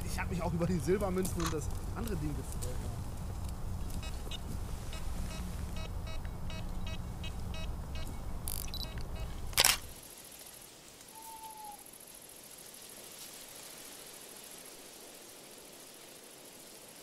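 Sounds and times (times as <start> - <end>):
small ticks: 1.1 - 12.6
camera shutter click: 8.5 - 9.9.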